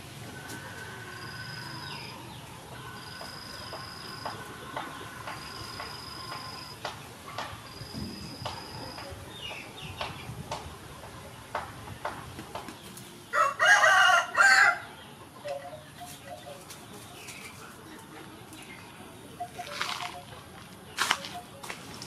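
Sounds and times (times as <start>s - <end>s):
rooster crowing: 13.3s - 14.9s.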